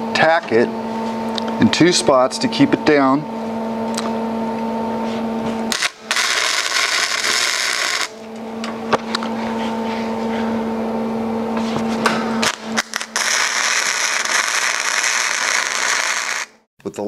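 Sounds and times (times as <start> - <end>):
steady low hum: 0.0 - 16.7
welding arc crackling: 5.7 - 8.2, 12.4 - 16.6.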